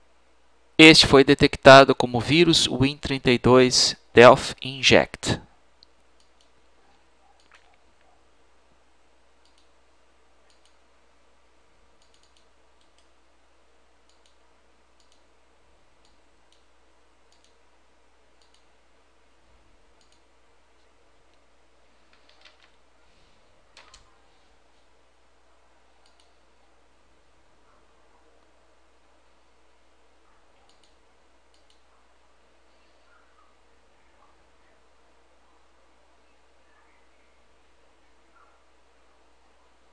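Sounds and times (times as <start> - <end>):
faint clicks: 9.4 - 9.8, 10.4 - 10.8, 12.0 - 13.2, 14.0 - 14.4, 15.0 - 15.3, 17.3 - 17.6, 18.4 - 18.7, 20.0 - 21.4, 26.0 - 26.4, 30.6 - 31.9.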